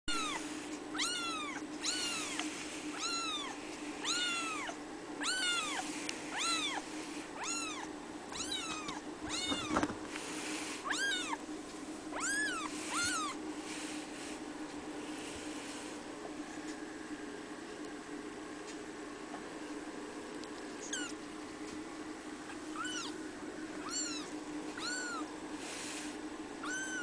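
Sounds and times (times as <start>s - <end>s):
kitten meowing: 0.1s - 6.8s, 7.4s - 9.8s, 10.9s - 11.4s, 12.1s - 13.4s, 20.8s - 21.2s, 22.8s - 23.2s, 23.8s - 25.3s, 26.6s - 27.0s
low steady hum: 0.1s - 27.0s.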